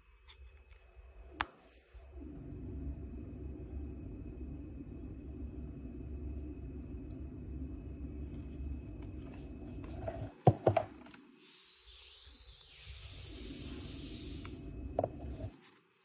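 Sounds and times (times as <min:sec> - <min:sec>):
device knocking on a table: 0:10.4 - 0:10.9
steady hiss: 0:11.2 - 0:16.0.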